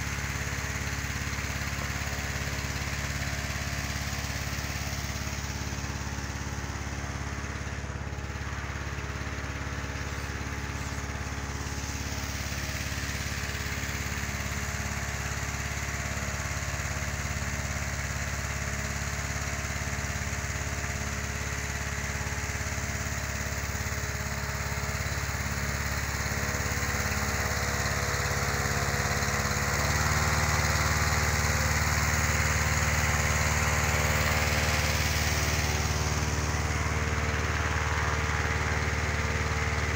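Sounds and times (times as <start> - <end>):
engine-driven inflator fan running: 0.0 - 39.9.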